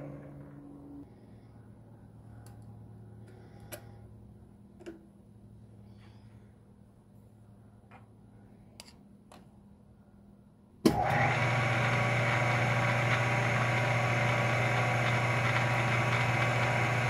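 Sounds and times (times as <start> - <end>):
lathe motor humming: 10.9 - 17.0.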